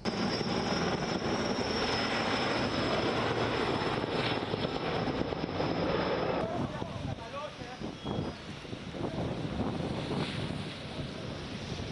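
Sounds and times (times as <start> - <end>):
helicopter rotor chop: 0.0 - 11.9
high turbine whine: 0.0 - 11.9.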